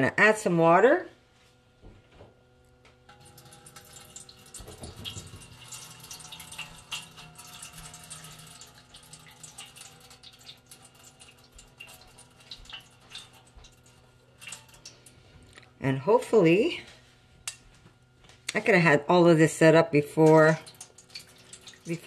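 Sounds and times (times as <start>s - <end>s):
water trickling: 3.1s - 15.2s, 20.2s - 22.0s
small ticks and drips: 3.1s - 15.7s, 20.2s - 22.0s.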